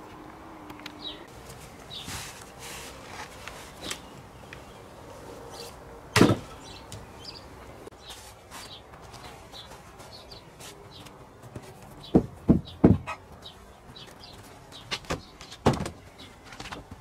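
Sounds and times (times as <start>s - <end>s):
birds chirping: 0.0s - 17.0s
footsteps scuffing over sawdust: 8.0s - 12.1s.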